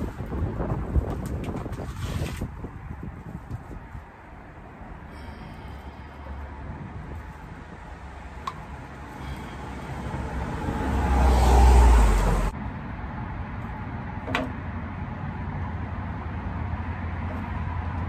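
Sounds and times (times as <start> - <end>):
motor vehicle passing: 4.7 - 18.0.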